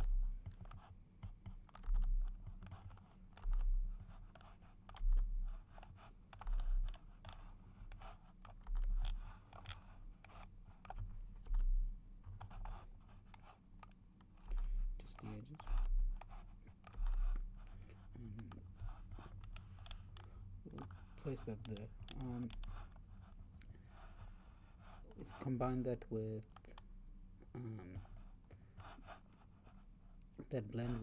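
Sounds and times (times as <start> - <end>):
computer mouse clicks: 0.0 - 23.8
keyboard key presses: 0.4 - 17.5.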